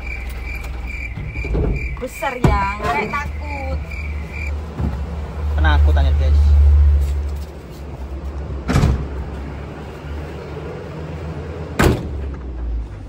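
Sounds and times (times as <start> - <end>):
truck door banging: 0.0 - 3.3, 8.6 - 9.3, 11.8 - 12.7
truck engine idling: 0.0 - 13.0.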